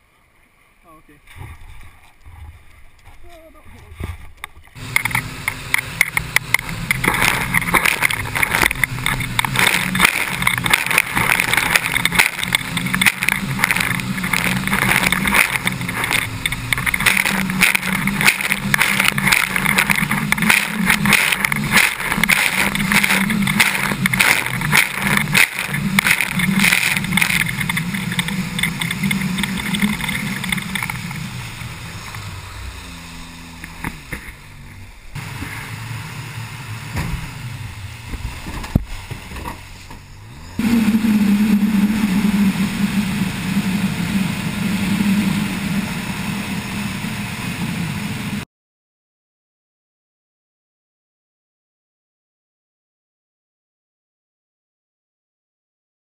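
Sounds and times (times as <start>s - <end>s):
wind: 0.0s - 48.4s
jet boat engine running hard: 4.8s - 38.4s, 40.4s - 48.4s.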